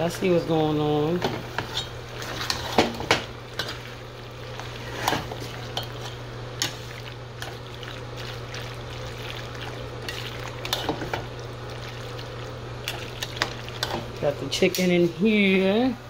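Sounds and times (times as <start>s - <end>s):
steady low hum: 0.0s - 16.0s
spoon stirring pasta: 1.6s - 14.3s.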